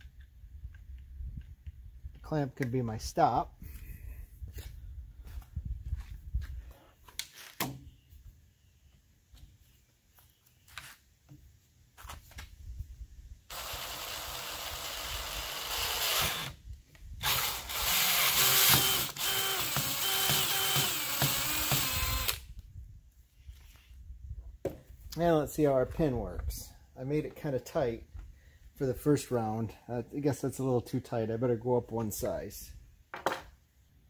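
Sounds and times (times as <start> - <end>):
cordless drill boring plastic pipe: 13.5 - 16.6, 17.2 - 22.4.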